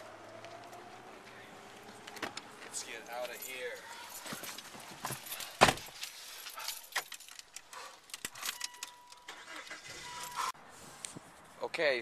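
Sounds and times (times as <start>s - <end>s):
keys jangling: 3.1s - 9.3s.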